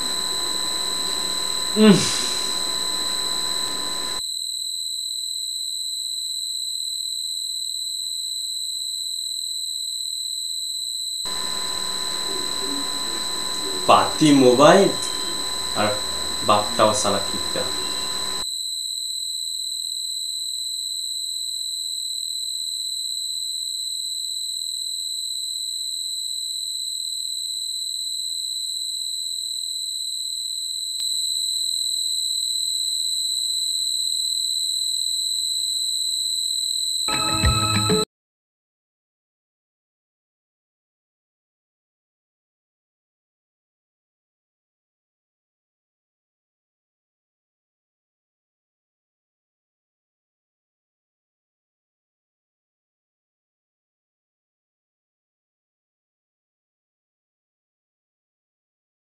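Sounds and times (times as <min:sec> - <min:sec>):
high-pitched electronic tone: 0:11.3 - 0:18.4, 0:37.1 - 0:38.0.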